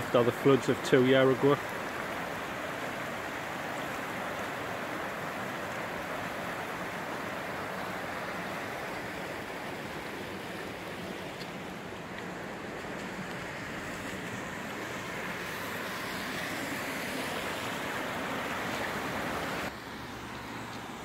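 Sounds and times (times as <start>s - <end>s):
water rushing over stones: 0.0s - 21.0s.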